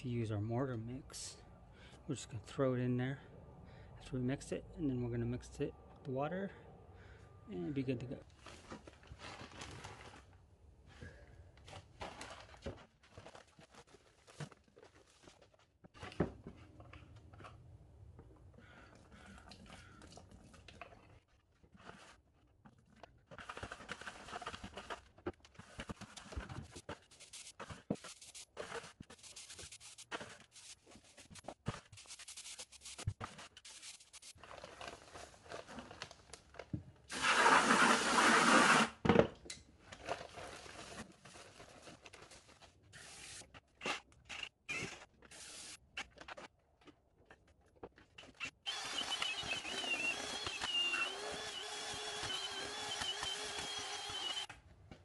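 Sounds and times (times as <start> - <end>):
trowel scraping mortar: 23.3 - 34.4, 37.1 - 38.9
steady whirring: 48.7 - 54.5.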